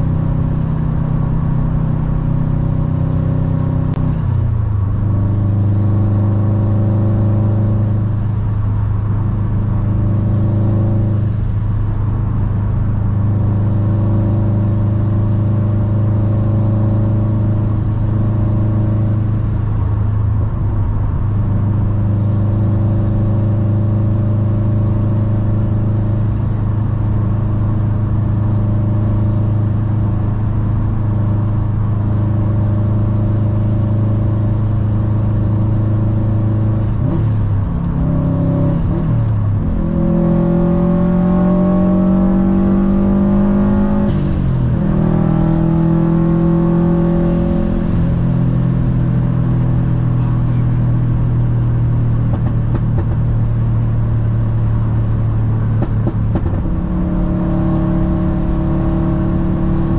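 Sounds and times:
car engine droning: 0.0 - 59.9.

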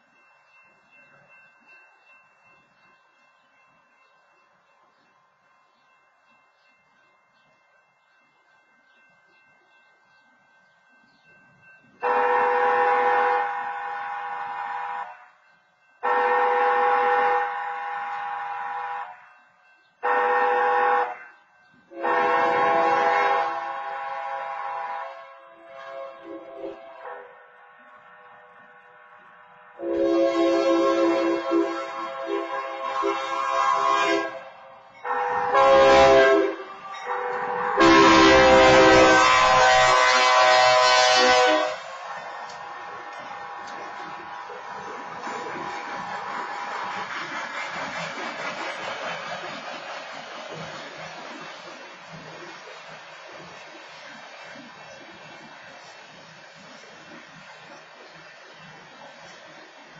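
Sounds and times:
locomotive air horn blasts: 12.0 - 15.4, 16.0 - 19.3, 20.0 - 21.3, 21.9 - 45.0
locomotive engine rumble: 30.7 - 59.9.

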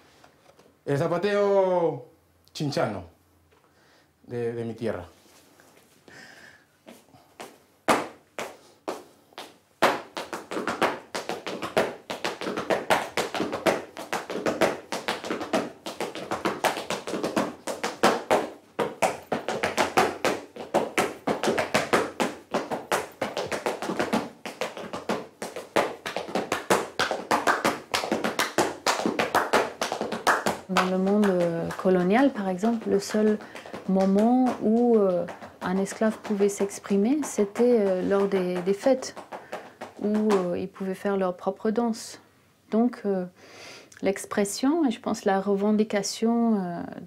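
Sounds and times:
shoes tapping rhythmic footwork: 6.9 - 40.8
cajon beats: 9.8 - 40.6.

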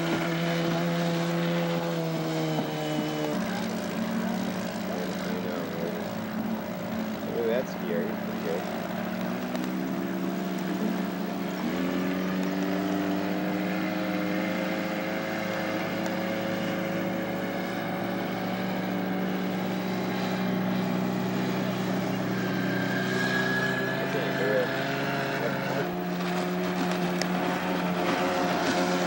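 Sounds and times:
motorboat engine running: 0.0 - 29.0.

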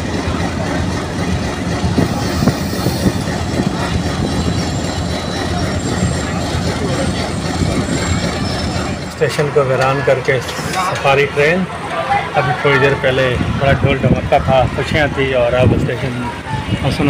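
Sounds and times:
train wheels clacking over rail joints: 0.0 - 11.2
train rumble: 0.0 - 17.0
faint high wheel squeal: 2.0 - 12.3.

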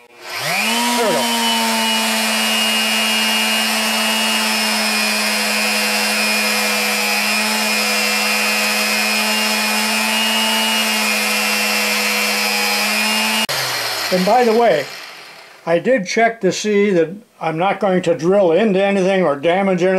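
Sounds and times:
magnetic drill motor humming: 0.0 - 15.7.

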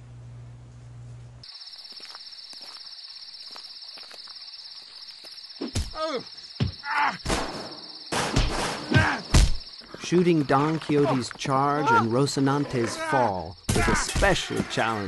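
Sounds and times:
low electrical hum: 0.0 - 1.4
crickets chirping: 1.4 - 15.0.

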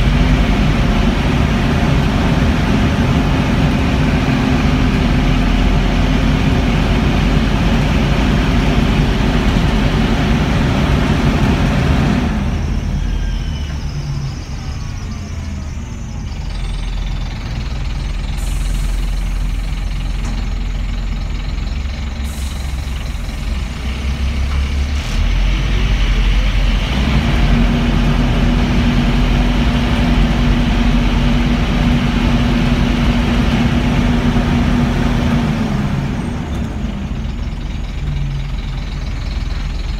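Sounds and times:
engine cooling fan roaring: 0.0 - 39.9
low diesel engine rumble: 0.0 - 39.9.

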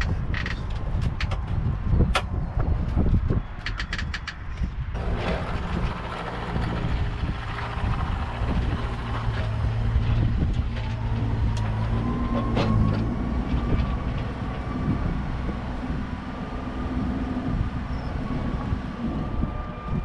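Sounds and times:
engine idling: 5.0 - 19.6.

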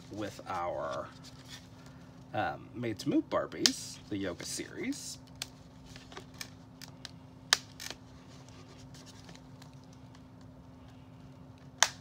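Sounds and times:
faint steady hum: 0.0 - 12.0
plastic packaging clicks and crinkling: 9.0 - 10.5.

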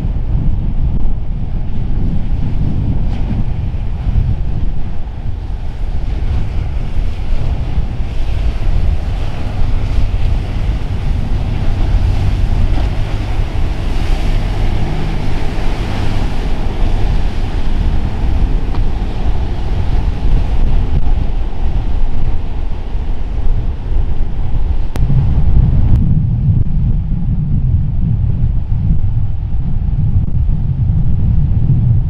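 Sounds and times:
rough surf: 0.0 - 32.0
wind buffeting microphone: 0.0 - 32.0
boat engines running: 3.7 - 25.0.

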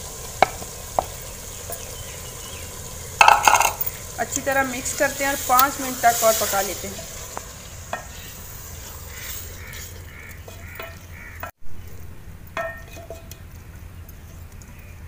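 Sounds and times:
lentils sizzling in a pot: 0.0 - 11.5
wooden spoon knocking on pot: 3.2 - 3.9.

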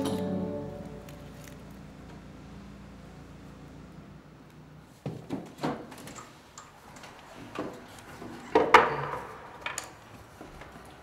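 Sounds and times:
knocks and clatter: 7.0 - 10.0.

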